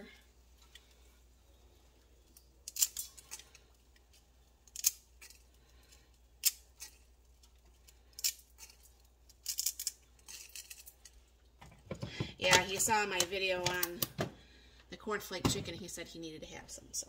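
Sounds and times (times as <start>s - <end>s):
dry pasta snapping: 2.3s - 11.1s.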